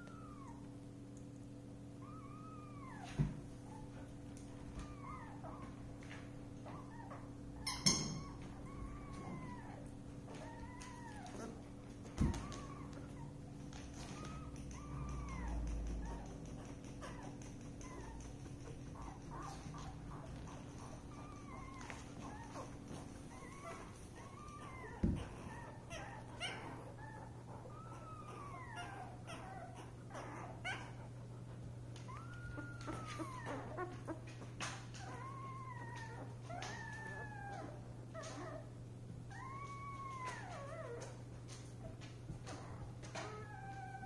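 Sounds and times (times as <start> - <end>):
puppies squeaking and whimpering: 0.0 - 0.7, 1.9 - 44.0.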